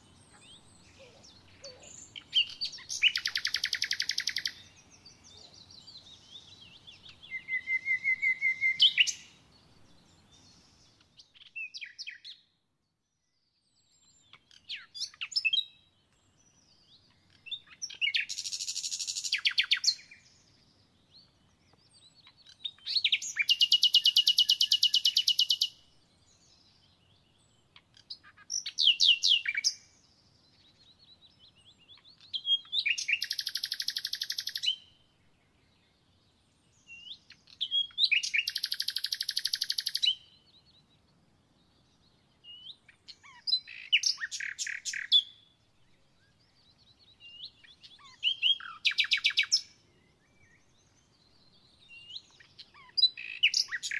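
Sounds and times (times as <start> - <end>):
faint bird chirps: 0.0 - 53.9
songbird high rattling trill: 32.9 - 34.7.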